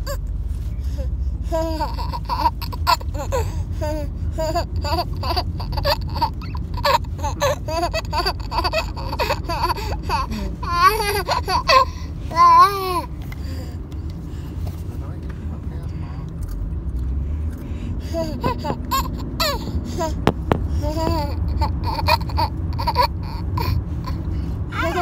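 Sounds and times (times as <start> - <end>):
steady low rumble: 0.0 - 25.0
baby laughing: 1.4 - 13.1, 18.1 - 25.0.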